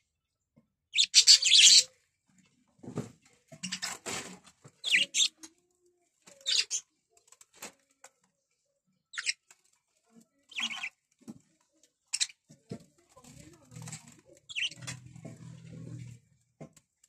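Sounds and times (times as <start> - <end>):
budgerigars chirping: 1.0 - 1.9, 4.8 - 5.3, 10.5 - 10.9, 14.5 - 14.8.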